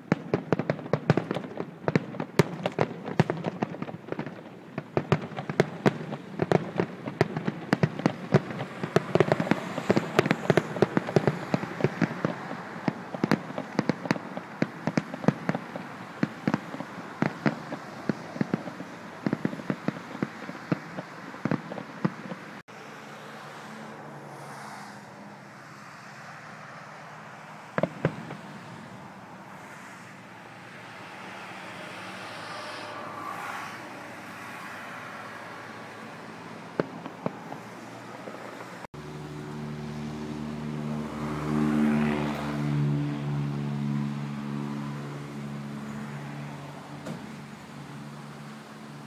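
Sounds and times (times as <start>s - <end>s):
firecrackers cracking: 0.0s - 22.6s, 27.6s - 30.0s, 36.8s - 38.9s.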